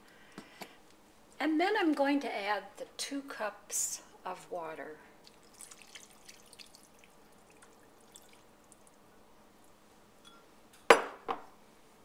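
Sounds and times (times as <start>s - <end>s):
faint splashing and dripping: 5.1s - 10.4s
water pouring into glass dish: 5.2s - 9.0s.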